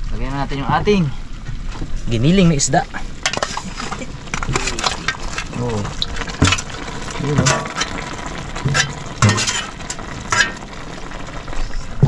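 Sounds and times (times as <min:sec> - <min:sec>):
soup bubbling: 0:02.8 - 0:12.0
metal utensil clinking in pot: 0:03.2 - 0:05.6, 0:07.3 - 0:08.0, 0:08.7 - 0:10.6.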